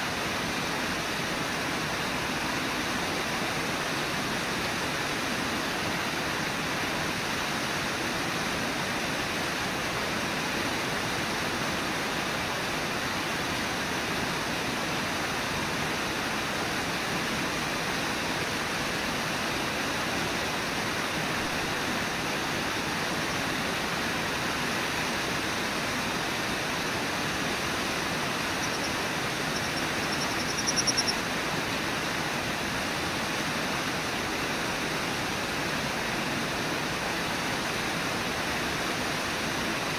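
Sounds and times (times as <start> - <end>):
river water rushing: 0.0 - 39.9
high-pitched pulsing sound: 28.5 - 31.2.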